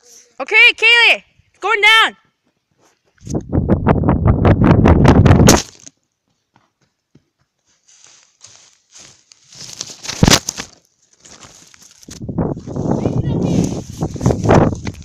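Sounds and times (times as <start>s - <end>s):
wind buffeting microphone: 3.2s - 5.5s, 12.1s - 15.0s.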